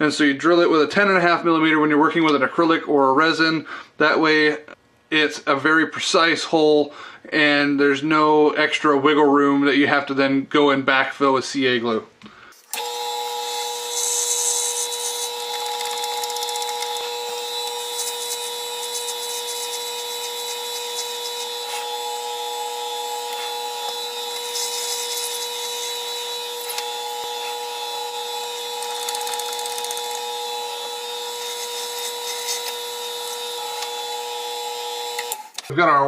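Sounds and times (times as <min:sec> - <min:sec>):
drill bit cutting resin: 0:12.6 - 0:35.7
lathe humming: 0:12.8 - 0:35.6.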